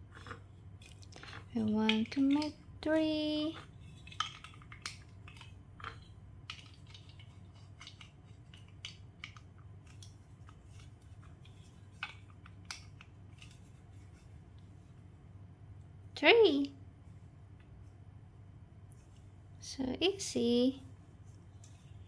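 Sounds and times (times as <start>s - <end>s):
faint low hum: 0.0s - 22.0s
plastic bricks clicking: 0.1s - 13.6s.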